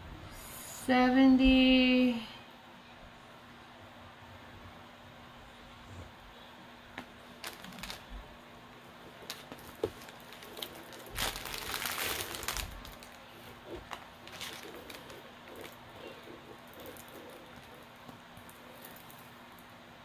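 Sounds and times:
plastic film crinkling and rustling: 7.2 - 8.2, 9.0 - 19.7.

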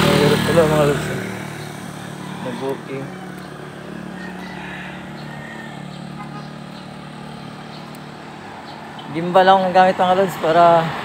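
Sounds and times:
passing vehicles engine hum: 0.0 - 11.0.

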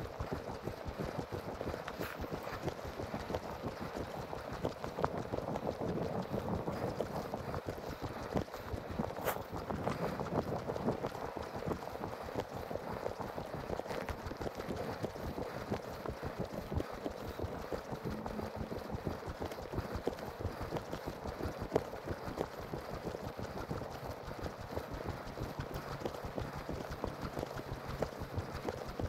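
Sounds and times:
footsteps on snowy dirt trail: 1.7 - 3.2, 9.2 - 10.1.

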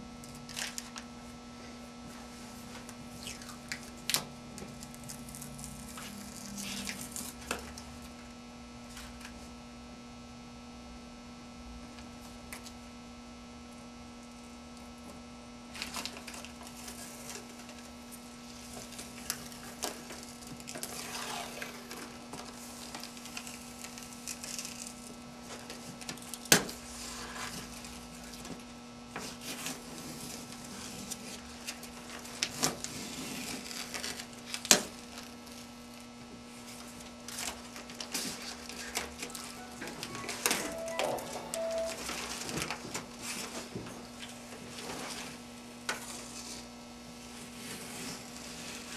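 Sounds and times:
electrical hum: 0.0 - 25.5, 38.7 - 42.8.

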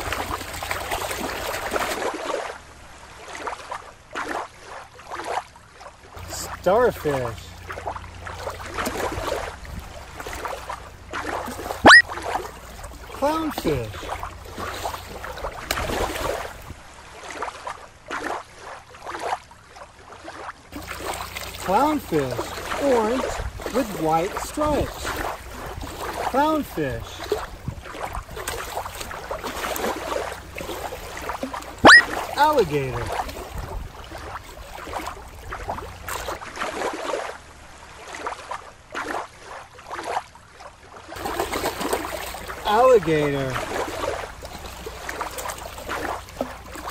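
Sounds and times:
watery surges: 0.0 - 46.9
low wind rumble: 7.4 - 13.2
toy splashing into water: 11.2 - 12.4, 28.4 - 33.4.

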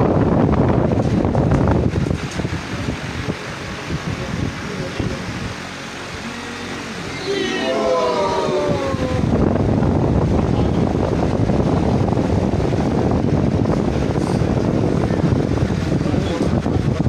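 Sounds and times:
dense crowd din: 5.9 - 9.7.

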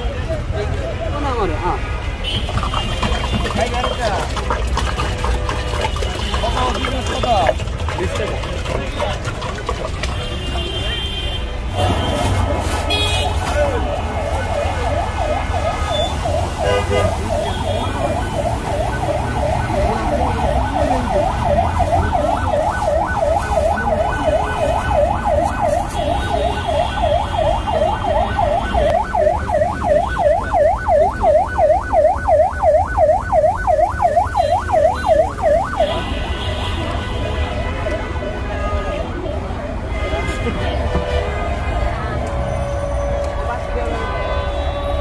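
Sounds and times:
low traffic rumble: 0.0 - 45.0
electronic siren yelping: 13.9 - 36.0.

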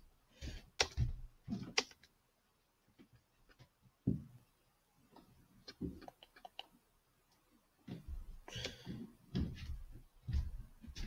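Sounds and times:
computer mouse clicking: 0.8 - 1.0, 1.7 - 2.1, 5.6 - 6.7.

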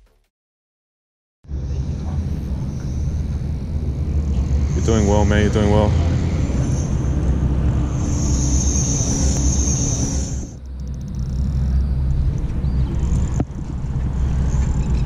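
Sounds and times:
high hiss: 2.4 - 10.6.

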